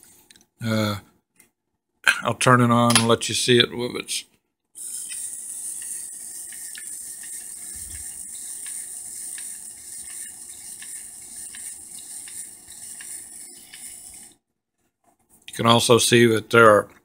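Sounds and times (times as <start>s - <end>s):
small motor whining: 4.8s - 14.4s.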